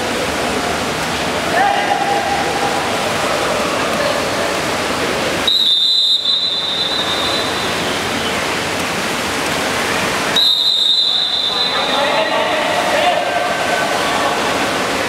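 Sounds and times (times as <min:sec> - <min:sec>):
water splashing: 0:00.0 - 0:15.0
crowd roar: 0:01.4 - 0:04.4
shrill whistle: 0:05.5 - 0:07.9, 0:10.4 - 0:12.0.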